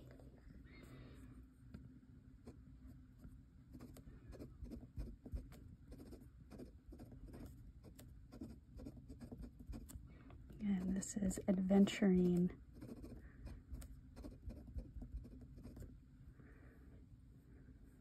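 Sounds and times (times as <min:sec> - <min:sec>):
dip nib scratching on paper: 0:03.7 - 0:10.0, 0:10.6 - 0:16.0.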